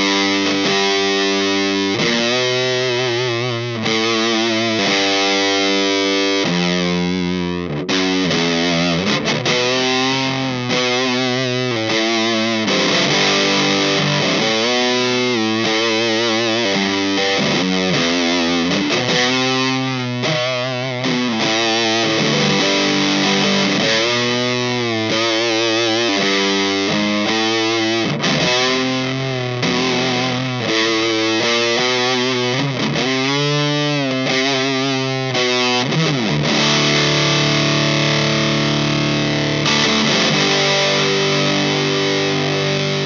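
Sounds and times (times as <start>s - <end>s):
fuzz electric guitar notes: 0.0s - 43.0s.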